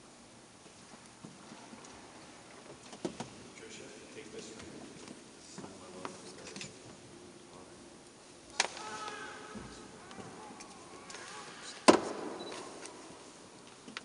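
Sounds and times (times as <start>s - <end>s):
sharp knocks in church: 11.9s - 12.6s.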